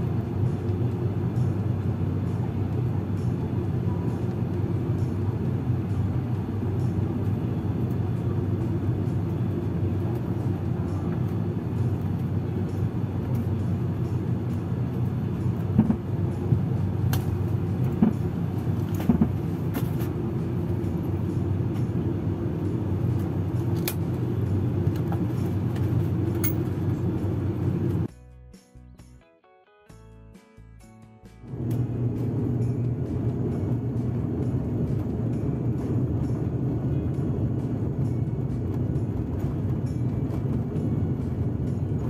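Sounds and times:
turboprop engines droning: 0.0 - 28.1, 31.4 - 42.0.

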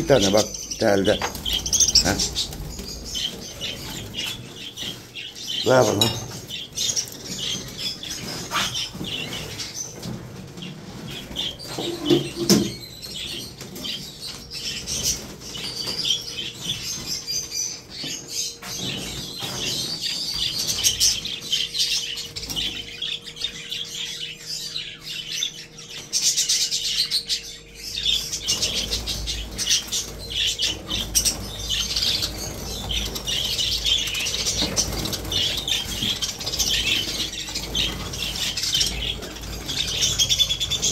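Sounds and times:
wings fluttering: 0.0 - 23.2, 27.8 - 40.9
budgerigars chattering and chirping: 0.0 - 40.9.

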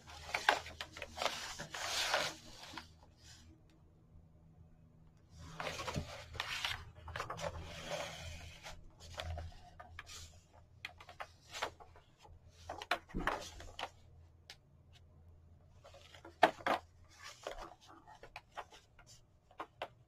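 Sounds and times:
paper pages turning: 0.0 - 3.4, 5.5 - 10.3.

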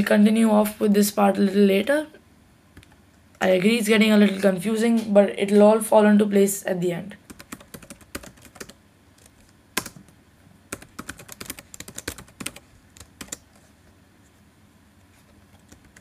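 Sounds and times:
typing on computer keyboard: 7.3 - 10.1, 10.7 - 13.5.

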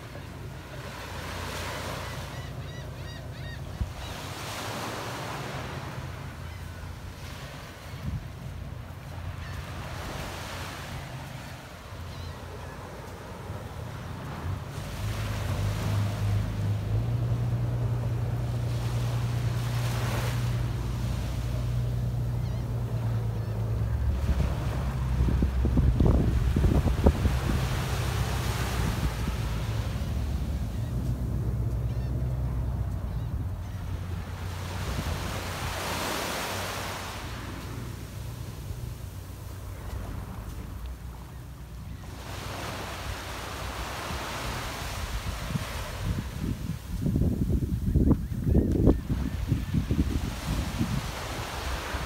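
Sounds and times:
small waves washing onto shore: 0.0 - 3.2, 3.8 - 33.1, 33.9 - 47.8, 48.6 - 52.0
wind rumbling on microphone: 14.1 - 36.0, 44.0 - 52.0.

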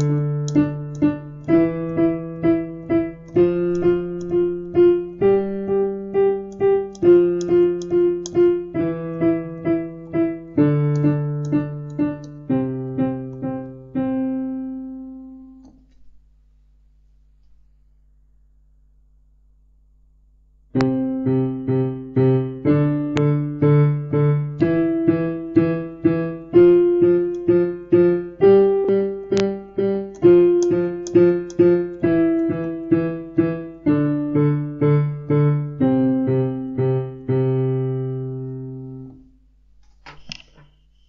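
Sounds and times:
held piano chord ringing: 0.0 - 15.6
piano exercise: 0.0 - 17.8, 20.3 - 41.0.

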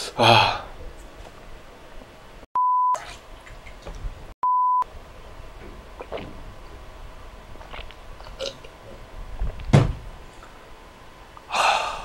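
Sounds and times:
man gulping a drink: 6.0 - 6.4, 7.6 - 8.8
breathy exhale: 11.5 - 12.0.

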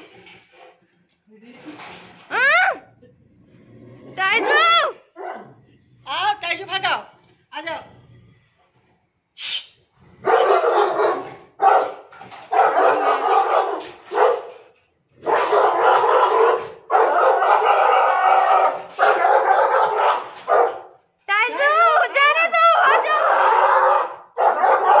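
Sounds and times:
dog barking loudly: 4.2 - 5.5, 10.2 - 14.6, 15.2 - 20.9, 22.8 - 25.0.

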